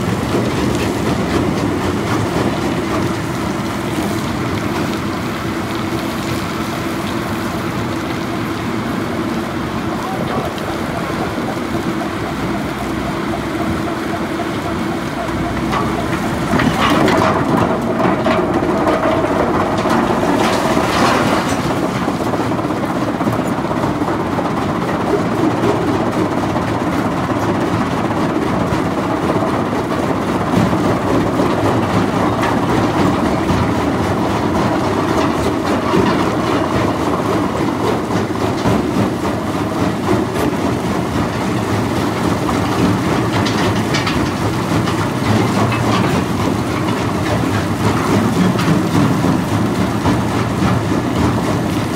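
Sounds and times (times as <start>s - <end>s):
rock crusher clattering: 15.2s - 23.4s, 40.1s - 51.9s
rocks crashing into steel hopper: 15.6s - 23.4s, 40.2s - 51.9s.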